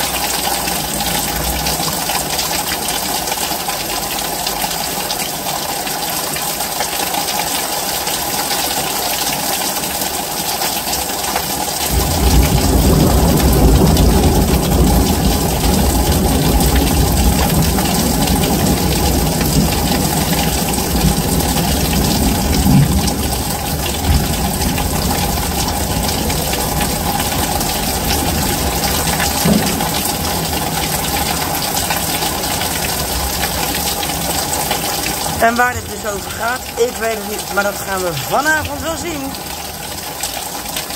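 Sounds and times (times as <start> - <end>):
heavy rain: 0.0 - 40.9.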